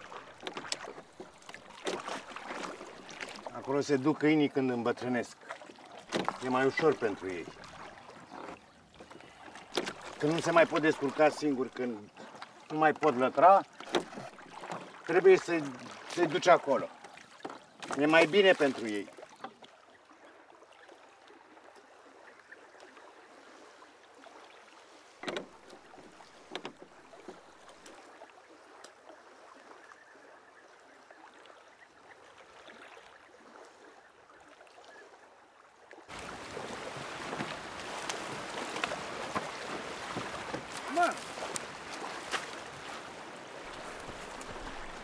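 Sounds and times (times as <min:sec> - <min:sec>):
sharp knocks on rowboat: 0:00.0 - 0:03.4, 0:06.0 - 0:07.0, 0:09.6 - 0:10.8, 0:13.7 - 0:14.9, 0:25.2 - 0:28.0, 0:37.3 - 0:42.6
open-water ambience: 0:00.0 - 0:45.0
water lapping at shore: 0:00.0 - 0:45.0.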